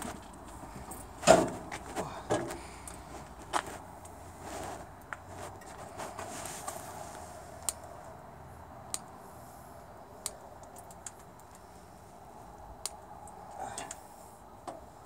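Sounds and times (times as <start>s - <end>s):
sharp metallic clicks: 10.2s - 11.6s.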